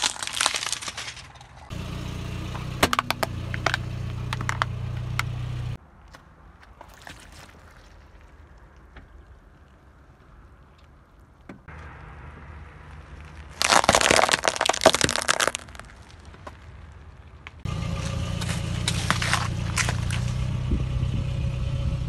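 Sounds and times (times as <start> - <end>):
walnut shells cracking under tyre: 0.0 - 1.7, 2.8 - 5.3, 12.9 - 20.4
car rumbling: 1.2 - 5.8, 8.0 - 22.0.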